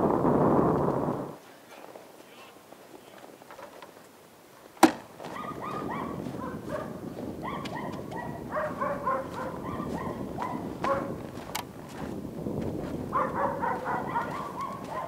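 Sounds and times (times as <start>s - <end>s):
footsteps in snow: 4.5s - 15.0s.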